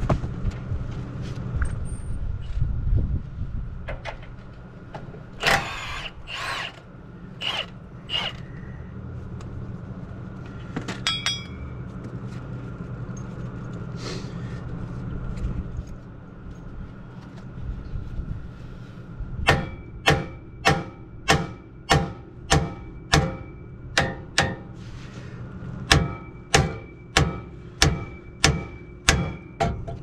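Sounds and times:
steady low hum: 0.0 - 30.0
impact wrench bursts: 5.4 - 6.8, 7.4 - 8.5
ringing metallic clink: 11.0 - 11.8.

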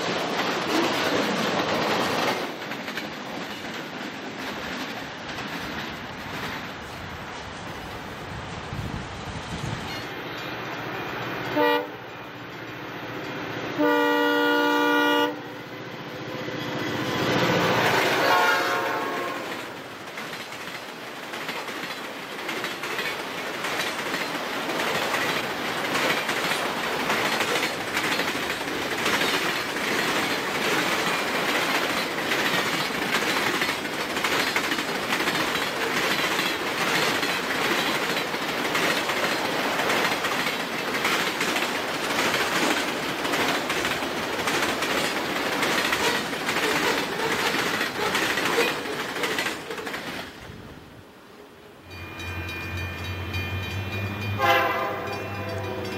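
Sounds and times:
train wheels clicking over rails: 0.0 - 11.6, 16.6 - 50.7
freight train rumbling and rattling: 0.0 - 51.3, 51.9 - 55.9.

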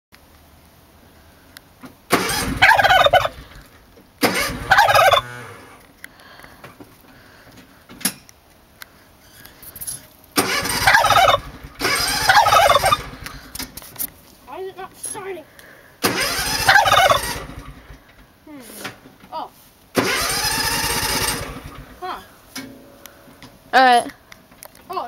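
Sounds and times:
turkey gobbling: 2.2 - 3.6, 4.3 - 5.4, 10.4 - 13.5, 16.1 - 17.6.

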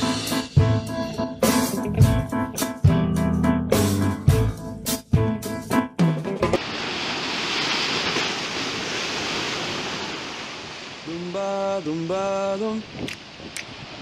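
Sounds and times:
sea waves breaking: 6.6 - 14.0.

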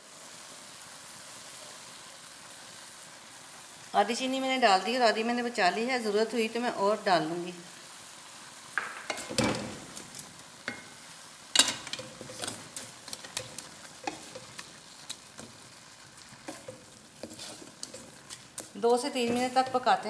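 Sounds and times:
mixture sizzling faintly: 0.0 - 20.0
wooden spatula scraping metal pan: 11.6 - 20.0.

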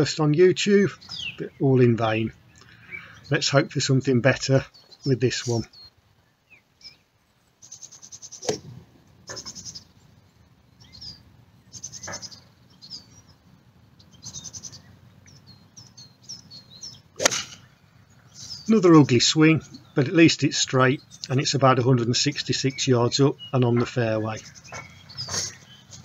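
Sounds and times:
birds trilling: 0.0 - 26.0
golf club striking ball: 8.4 - 9.6, 17.2 - 17.7.

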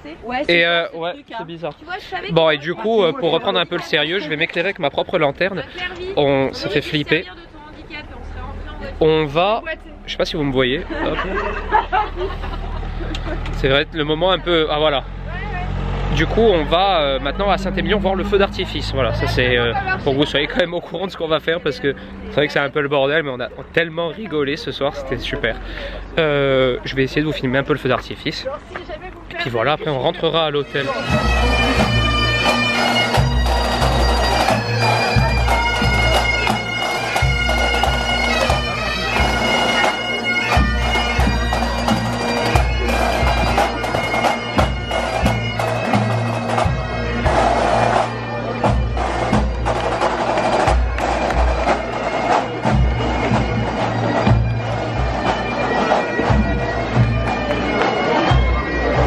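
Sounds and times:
bagpipes playing melody: 12.9 - 20.7, 29.4 - 59.0
drums beating: 30.8 - 59.0.

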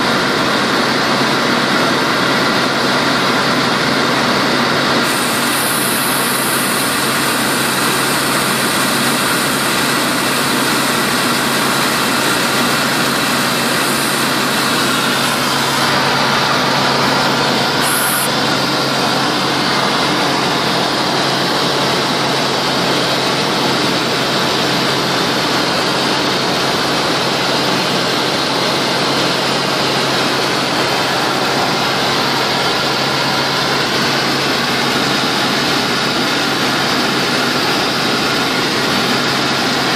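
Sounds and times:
aircraft engine and propeller: 0.0 - 39.9.

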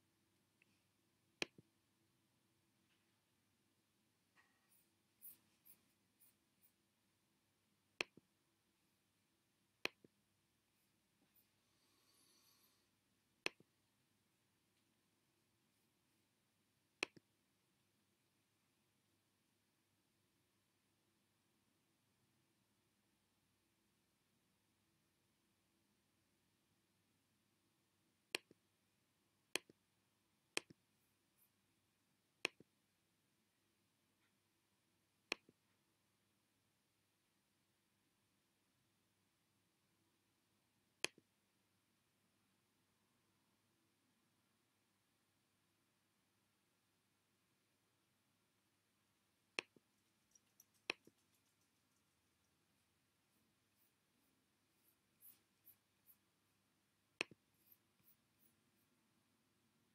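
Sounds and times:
computer mouse clicks: 49.6 - 52.2, 57.2 - 58.6
faint light ticks: 49.6 - 52.9
mouse button clicks: 57.2 - 58.5.

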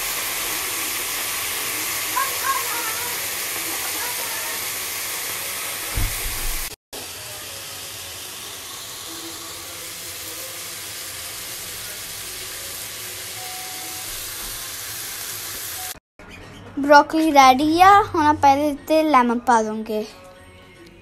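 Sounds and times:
vegetables sizzling in hot oil: 0.0 - 16.0
thump: 5.9 - 6.7.

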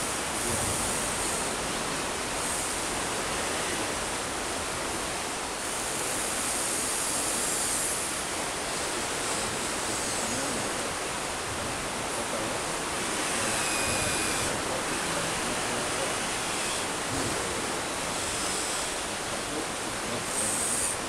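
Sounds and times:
river rushing: 0.0 - 21.0.

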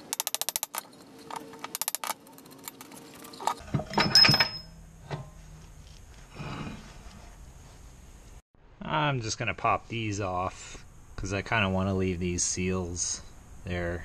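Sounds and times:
metal clanks: 0.0 - 5.5.

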